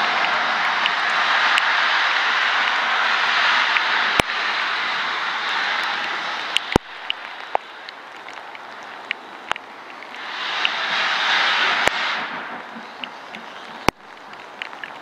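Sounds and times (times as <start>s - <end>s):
steam locomotive hissing steam: 0.0s - 9.0s, 10.0s - 15.0s
sharp clicks: 5.8s - 10.8s.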